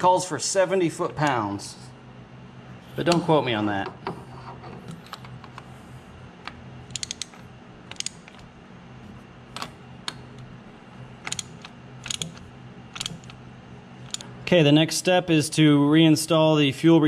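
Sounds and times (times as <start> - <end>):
steady low hum: 0.0 - 17.0
ratchet wrench clicking: 6.9 - 8.4, 11.3 - 12.4, 13.0 - 13.4.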